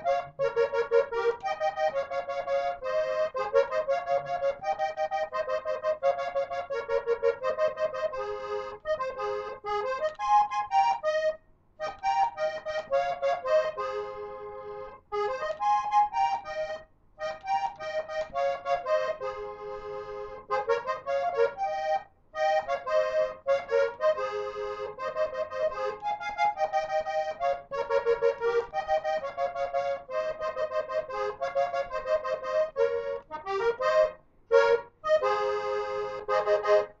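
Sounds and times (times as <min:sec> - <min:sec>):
button accordion playing: 0:00.0 - 0:37.0.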